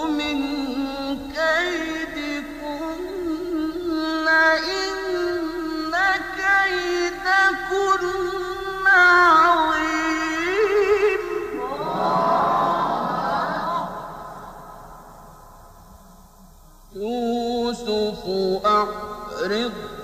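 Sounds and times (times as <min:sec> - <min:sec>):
man chanting melodically: 0:00.0 - 0:15.1, 0:16.9 - 0:20.0
crowd of voices: 0:11.5 - 0:15.1.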